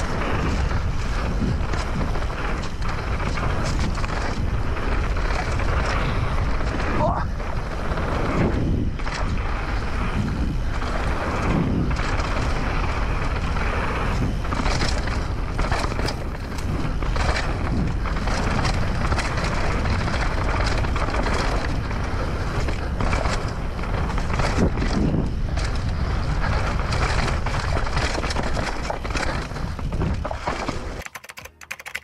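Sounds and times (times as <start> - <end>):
wind on microphone: 0.0 - 31.0
tyres on dirt: 0.0 - 31.6
bike chain and parts clattering: 11.8 - 31.5.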